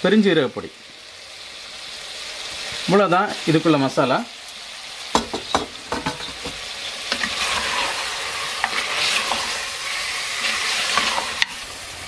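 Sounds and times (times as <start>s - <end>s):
meat sizzling: 0.0s - 12.0s
spatula knocking against pot: 5.2s - 6.6s.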